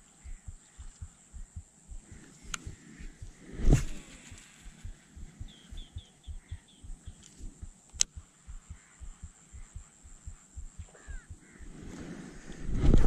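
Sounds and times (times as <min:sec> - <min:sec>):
bird chirping: 0:00.0 - 0:11.8
sharp click: 0:07.1 - 0:08.2.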